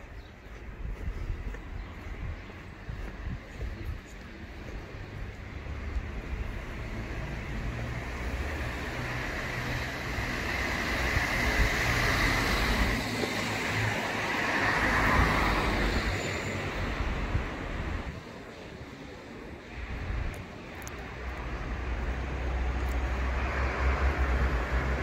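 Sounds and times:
cars passing: 0.0s - 25.0s.

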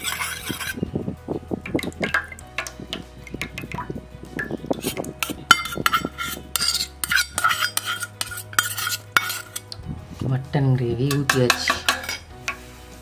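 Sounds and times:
steel utensils clinking on bowl: 0.0s - 0.8s, 3.4s - 9.8s, 11.0s - 12.6s.

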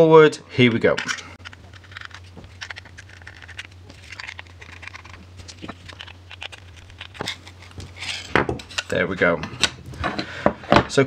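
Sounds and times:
small clicks scrapes and rustles: 0.9s - 9.0s
parts knocking on wooden table: 8.3s - 8.6s.

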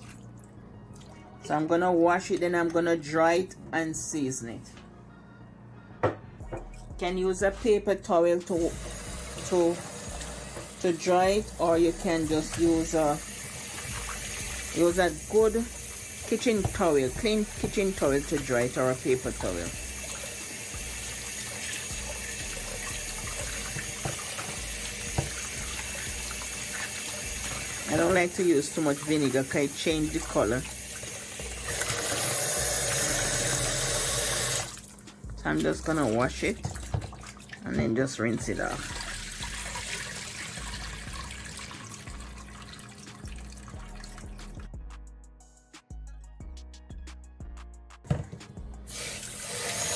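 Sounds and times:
faucet water splashing into bowl: 0.0s - 1.2s, 8.6s - 35.0s, 35.6s - 37.8s, 38.4s - 44.7s
water poured into sink: 12.0s - 35.0s, 35.6s - 44.7s, 48.9s - 49.9s
tap running into a glass bowl: 24.0s - 25.4s.

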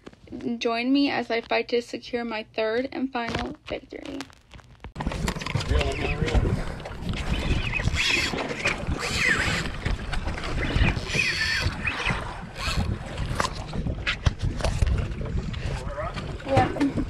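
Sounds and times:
water against boat hull: 5.0s - 17.0s
wind on microphone: 5.0s - 17.0s.

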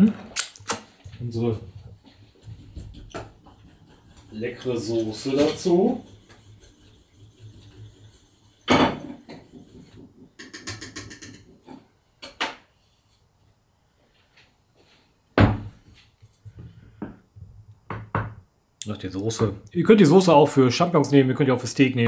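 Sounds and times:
whisk clattering against saucepan: 2.2s - 11.6s
pot knocking and thudding: 2.4s - 4.3s, 8.6s - 12.6s.

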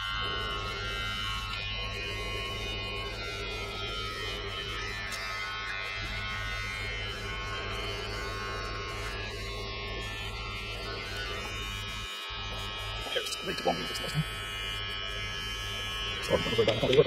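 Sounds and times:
electric trimmer buzzing: 0.0s - 17.0s.

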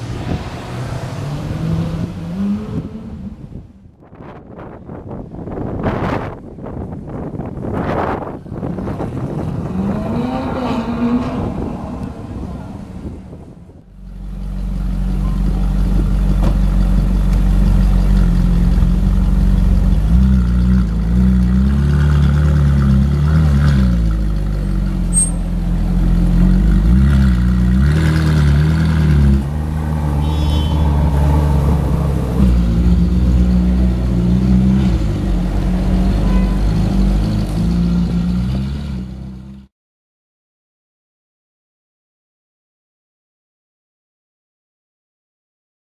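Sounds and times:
car engine at low revs: 11.5s - 36.0s.

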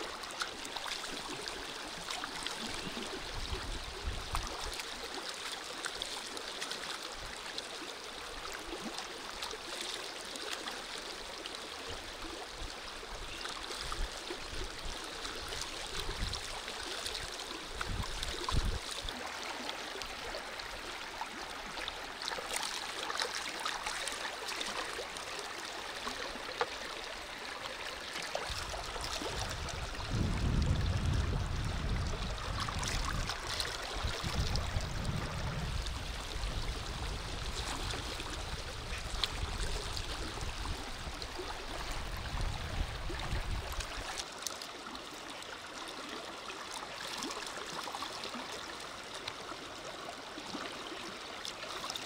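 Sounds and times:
river rushing over stones: 15.2s - 52.0s
dull low thumps: 29.8s - 32.6s.

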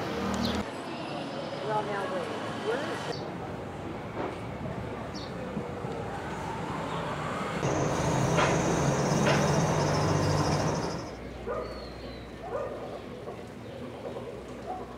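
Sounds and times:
vehicle passing: 2.0s - 11.2s.

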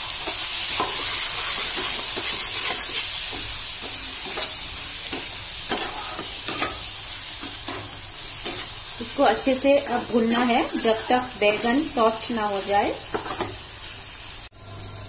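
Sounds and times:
vegetables sizzling in oil: 0.0s - 15.0s
metal spatula scraping pan: 0.2s - 6.9s, 9.8s - 12.2s.

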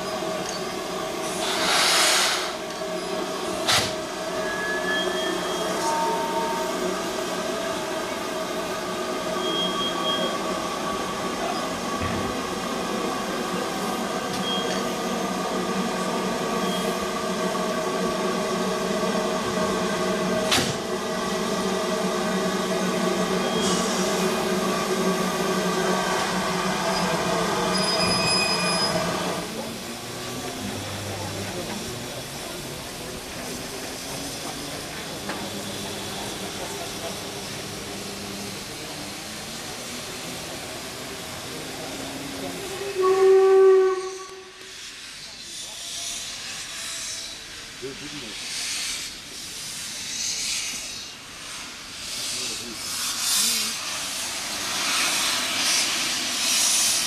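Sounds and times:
railway turntable running: 0.0s - 42.8s.

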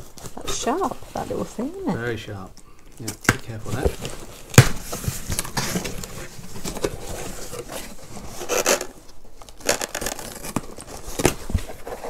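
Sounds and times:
cardboard and tape scraping: 3.5s - 12.0s.

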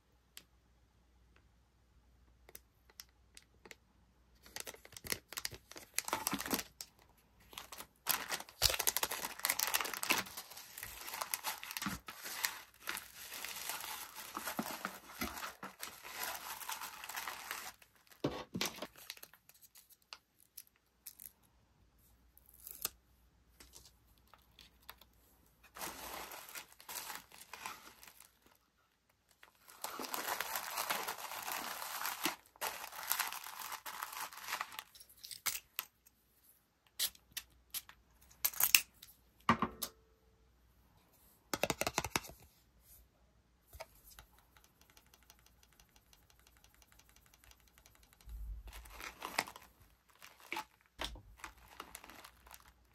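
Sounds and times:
cellophane and paper crinkling: 4.4s - 20.0s, 25.7s - 28.6s, 29.3s - 35.2s, 47.4s - 52.9s.

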